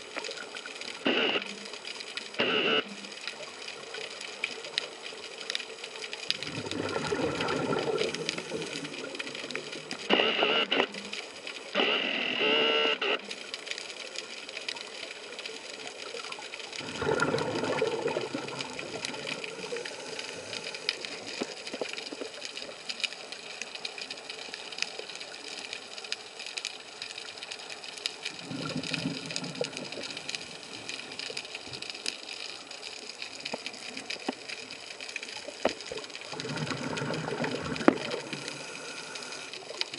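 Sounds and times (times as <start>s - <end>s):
faint steady hum: 0.0s - 39.9s
bubbly exhalations underwater: 6.3s - 10.4s, 16.8s - 22.3s, 28.3s - 30.6s, 35.6s - 39.8s
hissing regulator inhalations: 38.0s - 39.7s.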